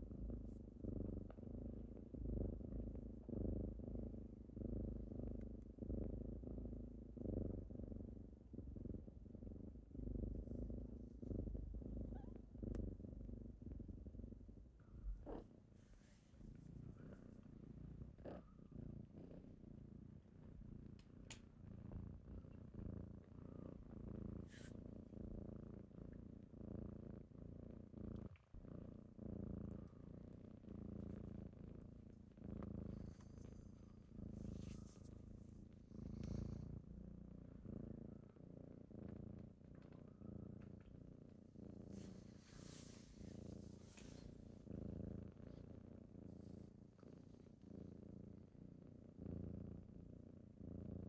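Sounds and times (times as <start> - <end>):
kittens purring: 0.0 - 51.0.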